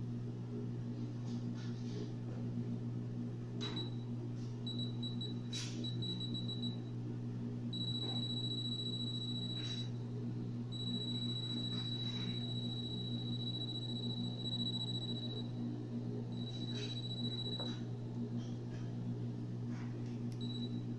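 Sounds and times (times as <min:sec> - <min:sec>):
low electrical hum: 0:00.0 - 0:20.9
steady continuous alarm tone: 0:03.6 - 0:04.1, 0:04.7 - 0:06.9, 0:07.7 - 0:10.0, 0:10.7 - 0:15.7, 0:16.3 - 0:17.9, 0:20.4 - 0:20.9
electronic beeps: 0:16.4 - 0:17.8.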